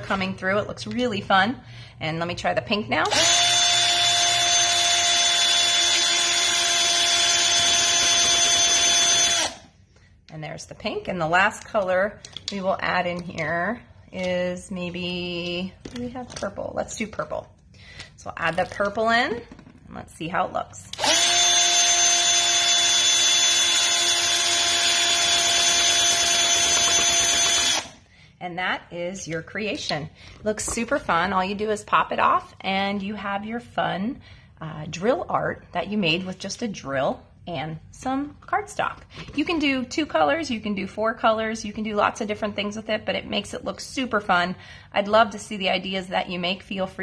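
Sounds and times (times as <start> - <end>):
power drill whining: 3.0 - 9.7, 20.9 - 28.0.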